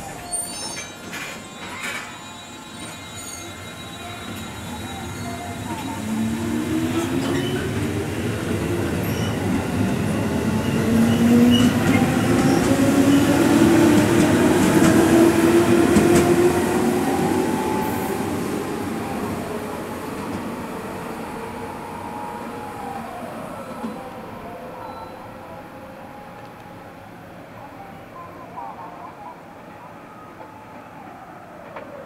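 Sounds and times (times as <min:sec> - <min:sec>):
wheels rumbling on rail: 0:00.0 - 0:21.7.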